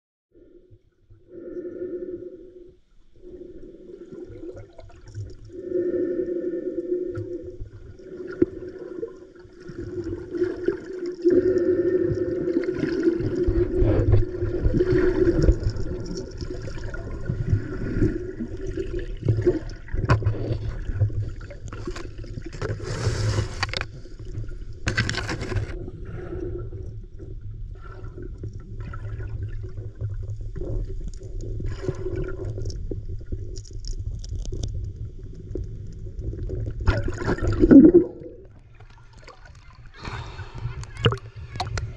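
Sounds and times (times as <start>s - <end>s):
rushes of water noise: 1.3s - 41.9s
muffled underwater gurgling: 3.2s - 22.1s, 34.9s - 38.7s, 39.7s - 41.9s.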